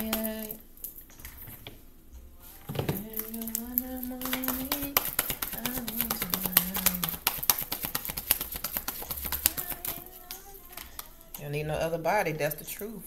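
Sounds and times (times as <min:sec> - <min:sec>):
cards being shuffled: 0:03.2 - 0:11.2.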